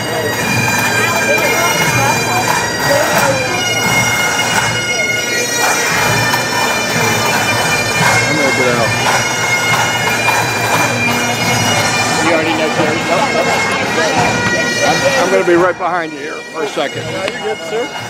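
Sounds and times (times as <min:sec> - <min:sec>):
bagpipes playing: 0:00.0 - 0:18.0
crowd voices: 0:00.0 - 0:18.0.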